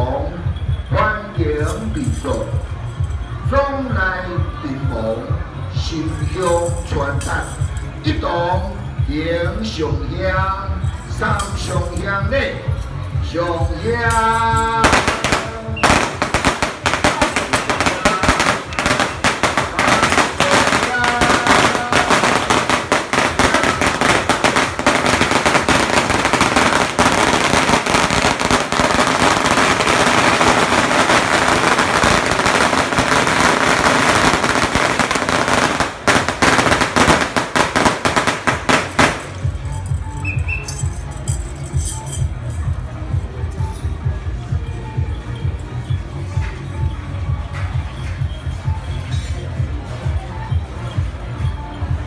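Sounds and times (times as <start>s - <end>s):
firecrackers crackling: 10.8s - 42.7s.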